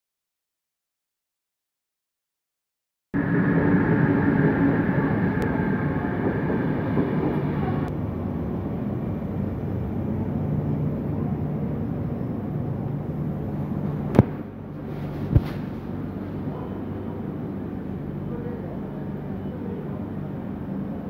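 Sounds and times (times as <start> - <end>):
high whine: 3.2 - 8.2
train wheels rumbling on rails: 3.2 - 17.1.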